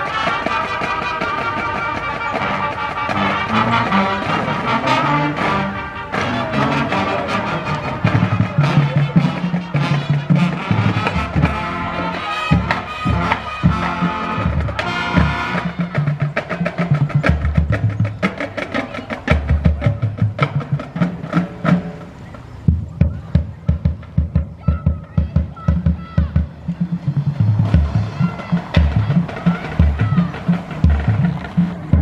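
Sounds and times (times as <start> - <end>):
brass band playing: 0.0 - 22.1, 26.6 - 32.0
drum beat: 7.8 - 22.1, 22.7 - 32.0.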